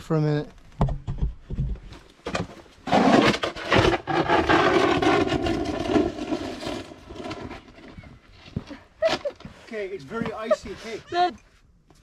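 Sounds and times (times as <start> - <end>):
snow shovel scraping pavement: 2.8 - 11.3.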